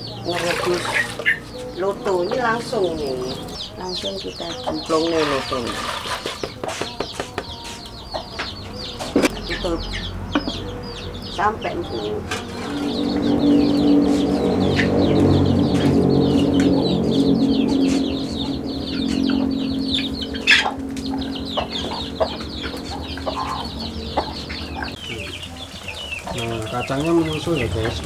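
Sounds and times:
chickens clucking: 0.0s - 28.0s
low steady hum: 8.3s - 28.0s.

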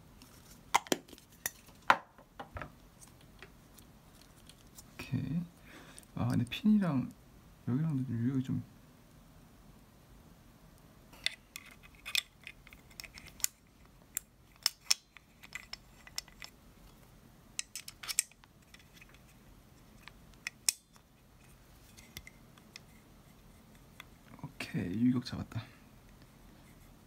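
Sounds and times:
small metal parts clicking: 11.2s - 16.5s, 17.6s - 19.2s.

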